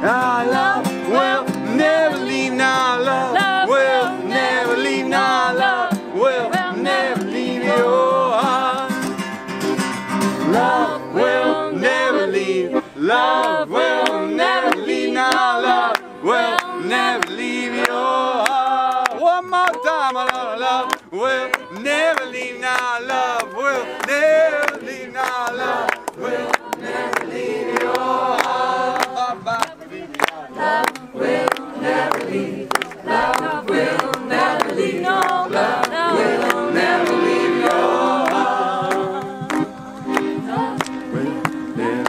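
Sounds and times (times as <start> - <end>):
group singing a chant-like song: 0.0 - 9.2, 10.2 - 42.0
hand claps: 1.4 - 3.6, 8.6 - 10.0, 13.4 - 42.0.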